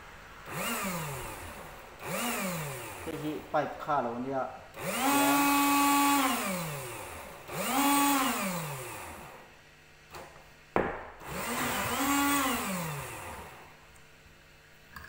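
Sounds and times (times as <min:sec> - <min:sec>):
small electric motor whining: 0:00.5 - 0:03.1, 0:04.8 - 0:09.4, 0:11.2 - 0:13.7.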